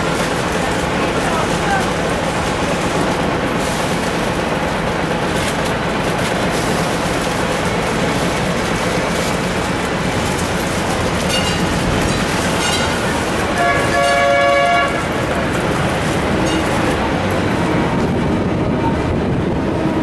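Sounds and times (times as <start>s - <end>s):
tram wheels rumbling on rails: 0.0s - 20.0s
tram bell ringing: 11.2s - 15.4s, 16.3s - 17.8s.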